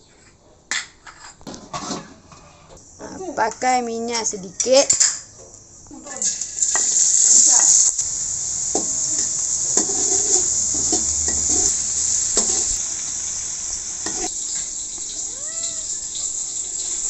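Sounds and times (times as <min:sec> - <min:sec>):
metal spatula scraping wok: 0:01.0 - 0:02.8, 0:09.1 - 0:12.9
onion sizzling in hot oil: 0:02.8 - 0:17.0.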